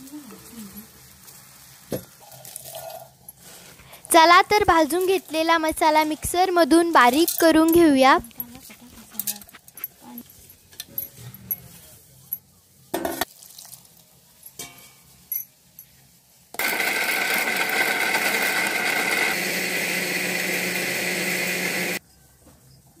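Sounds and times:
mixer grinder whining: 16.6 - 22.0.

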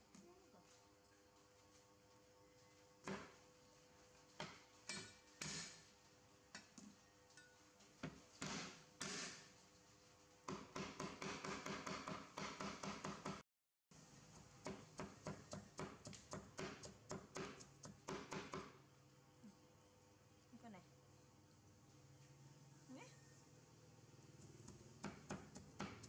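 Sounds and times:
cleaver chopping on wooden board: 10.5 - 13.4, 14.7 - 18.7.

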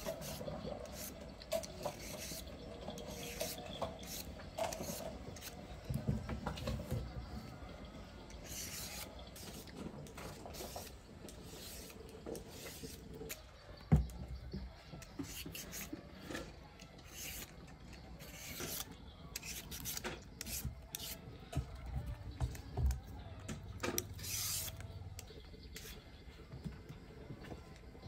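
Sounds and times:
peeler rasping vegetable skin: 0.0 - 5.8, 8.3 - 13.6, 15.0 - 21.5, 23.9 - 26.0.

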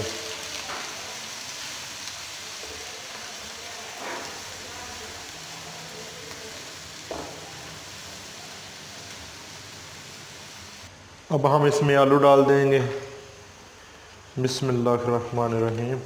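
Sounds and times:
onions sizzling in hot oil: 0.0 - 11.2.

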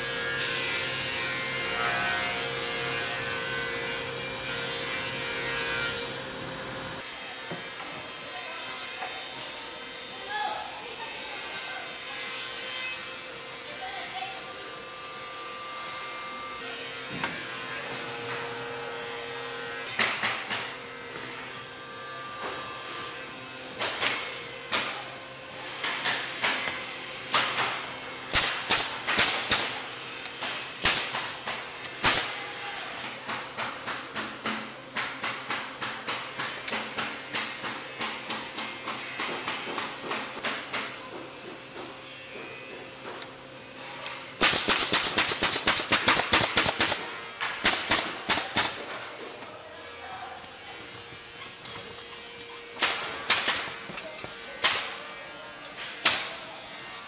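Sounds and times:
nail gun firing into wood: 28.3 - 29.8, 30.8 - 32.3, 44.4 - 48.9, 52.8 - 53.7, 54.6 - 54.9, 56.0 - 56.3.

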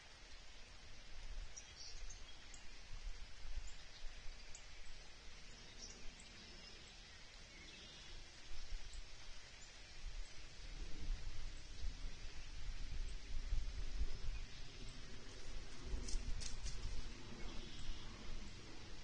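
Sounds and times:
running creek water: 0.0 - 19.0
wind gusts on microphone: 9.9 - 19.0
faint bird chirps: 16.0 - 18.3.

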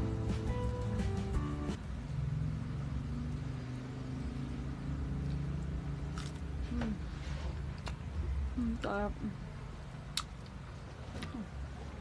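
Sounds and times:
biting into fruit click: 10.1 - 10.6.

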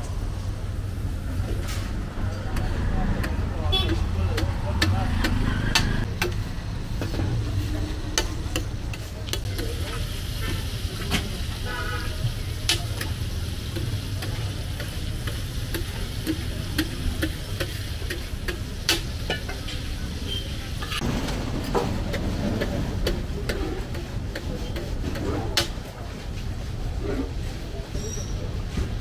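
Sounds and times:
liver frying on hot pan: 9.5 - 20.9.

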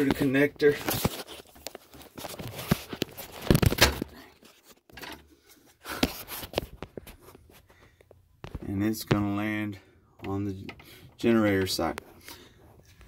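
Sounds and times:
handling knocks and scrapes: 0.0 - 9.6.

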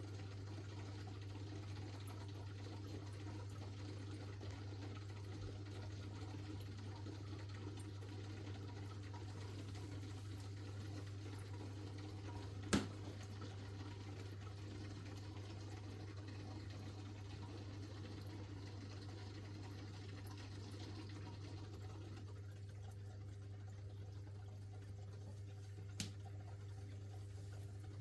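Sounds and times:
aquarium filter pump humming: 0.0 - 28.0
faint moving water: 0.0 - 28.0.

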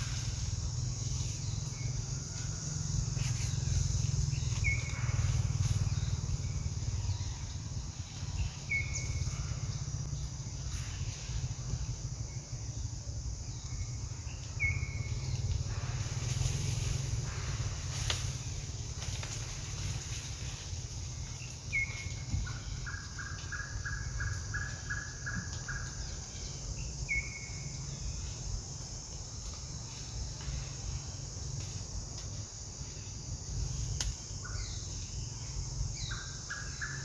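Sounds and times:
rustling leaf litter: 0.0 - 7.2, 14.4 - 26.6
insect hiss: 0.0 - 37.0.

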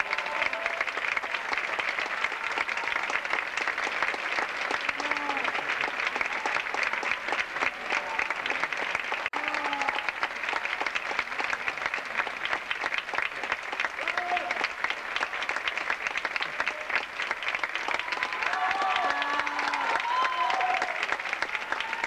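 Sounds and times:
audience applauding: 0.0 - 22.0.

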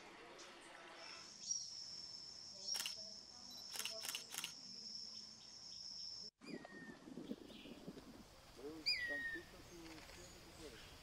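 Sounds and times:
sharp clicks: 2.7 - 3.0.

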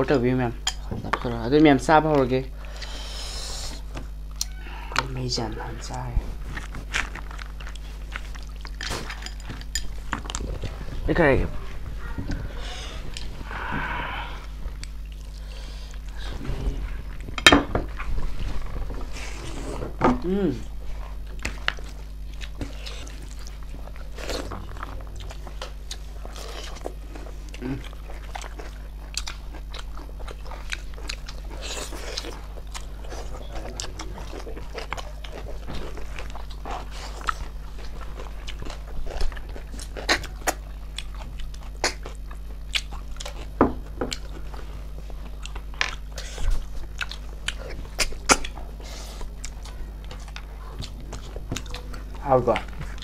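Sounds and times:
steady low hum: 0.0 - 53.0
chewing with clicks and smacks: 5.8 - 10.9, 14.6 - 16.2, 21.0 - 53.0.

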